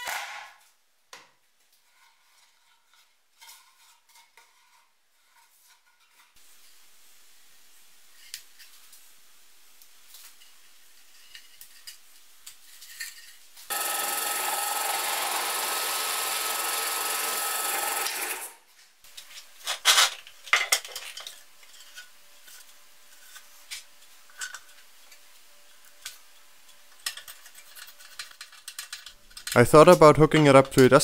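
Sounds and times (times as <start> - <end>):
drill press whirring: 13.7 - 18.6
faint clicks of small parts: 19.1 - 31.0.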